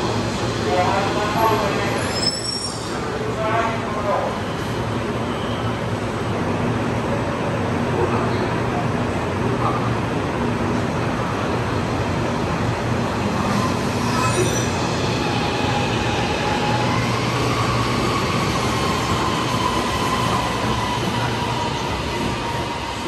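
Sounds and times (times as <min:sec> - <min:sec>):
high wheel squeal: 0:01.9 - 0:03.1, 0:13.4 - 0:21.4
train wheels on rail: 0:08.7 - 0:23.0.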